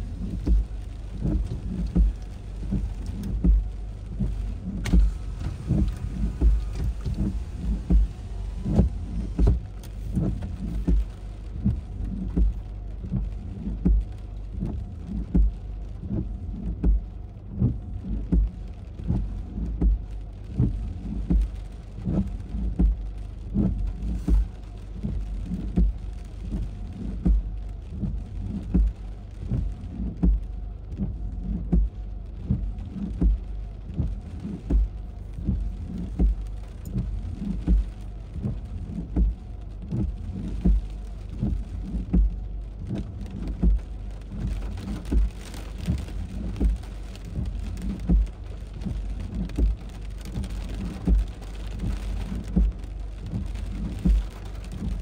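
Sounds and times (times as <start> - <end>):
heavy rain hissing: 0.0 - 14.3
low wind thumps: 0.0 - 55.0.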